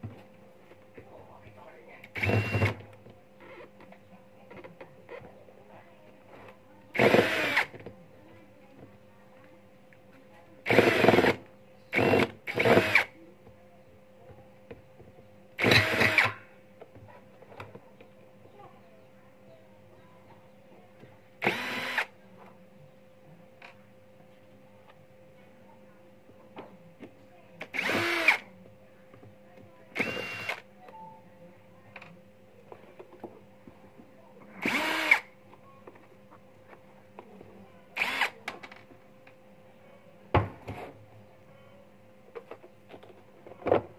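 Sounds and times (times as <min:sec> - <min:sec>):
cordless drill driving screws: 0:02.2 - 0:02.8, 0:07.0 - 0:07.7, 0:10.7 - 0:13.1, 0:15.6 - 0:16.3, 0:21.4 - 0:22.1, 0:27.7 - 0:28.4, 0:30.0 - 0:30.6, 0:34.6 - 0:35.3, 0:38.0 - 0:38.4.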